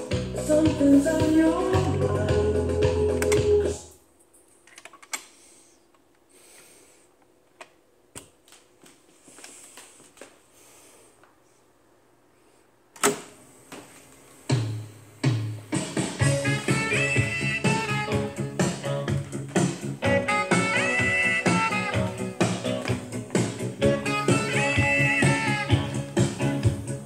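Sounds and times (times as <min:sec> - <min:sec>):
music with strong bass: 0:00.0 - 0:03.8, 0:14.6 - 0:27.0
music from stereo: 0:00.0 - 0:04.0, 0:14.4 - 0:27.0.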